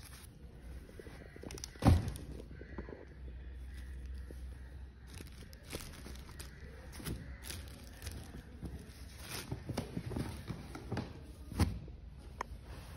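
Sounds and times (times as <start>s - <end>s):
fabric and packaging rustling: 0.0s - 2.2s, 3.7s - 11.8s.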